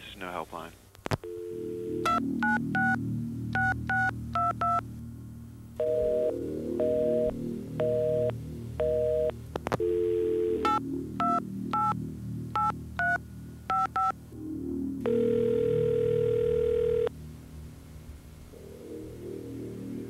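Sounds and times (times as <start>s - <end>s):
dial tone: 1.2s - 3.0s, 5.8s - 12.0s, 15.0s - 17.1s
low background music: 1.2s - 20.0s
ringback tone: 15.0s - 17.1s.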